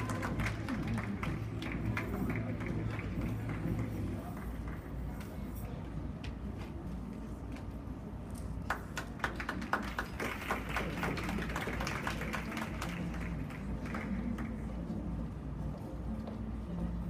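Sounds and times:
audience clapping: 0.0s - 5.0s, 8.6s - 14.8s.

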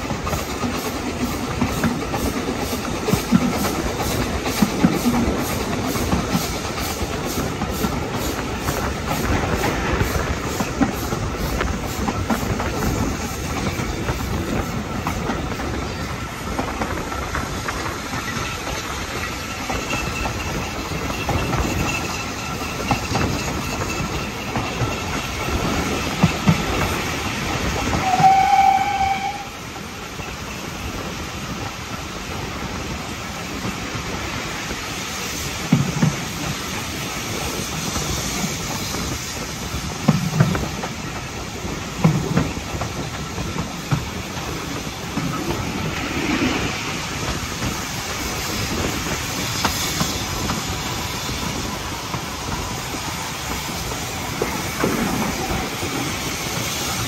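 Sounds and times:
train wheels clickety-clack: 0.0s - 57.0s
steam whistle blast: 28.0s - 29.6s.

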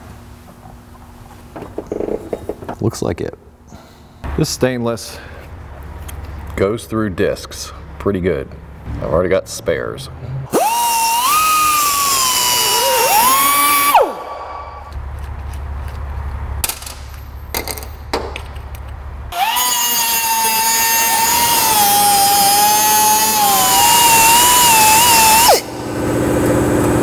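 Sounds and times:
pneumatic cut-off tool whining: 10.5s - 14.6s, 19.3s - 25.9s.

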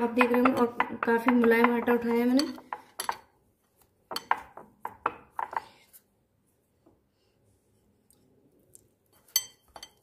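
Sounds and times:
utensils knocking on mixing bowl: 0.0s - 3.3s, 4.1s - 5.6s.

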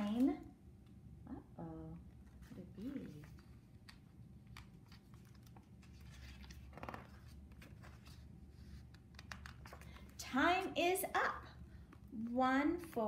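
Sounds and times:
book pages rustling and clicking: 2.3s - 10.2s.

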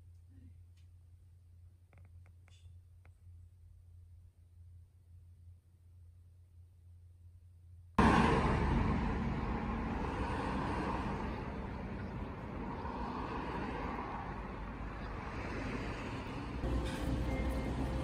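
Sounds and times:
road traffic noise: 8.0s - 18.0s.

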